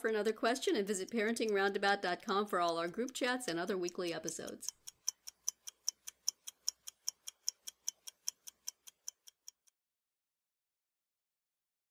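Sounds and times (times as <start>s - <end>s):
rapid ticking: 0.0s - 9.7s.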